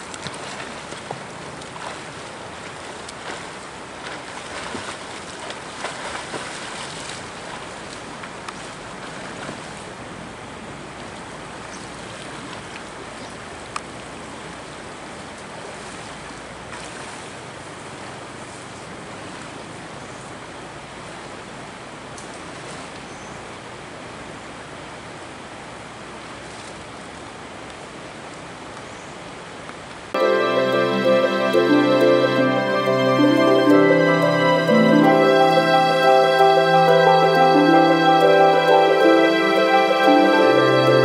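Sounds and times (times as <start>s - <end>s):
swimmer splashing in water: 0.0s - 9.9s
rushing wash of water: 0.0s - 28.7s.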